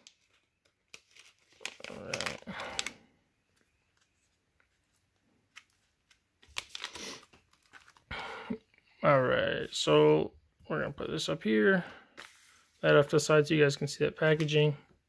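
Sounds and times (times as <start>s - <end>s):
foil pouch crinkling: 0.0s - 3.0s, 4.9s - 8.1s.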